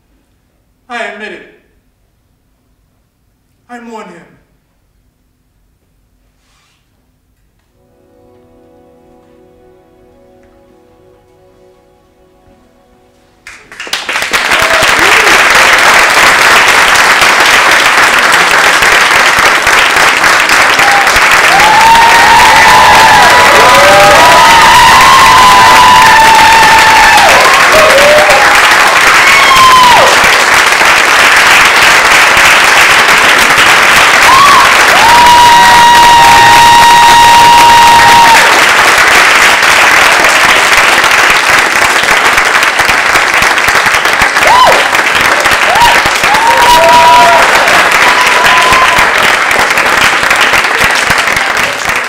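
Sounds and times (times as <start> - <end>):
audience applauding: 13.4 - 52.0
high cheers: 13.5 - 41.6, 44.1 - 52.0.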